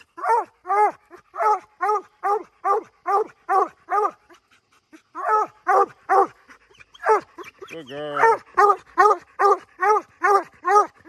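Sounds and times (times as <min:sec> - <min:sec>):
dog barking: 0:00.2 - 0:04.2, 0:05.2 - 0:06.4, 0:07.0 - 0:07.4, 0:08.1 - 0:11.0.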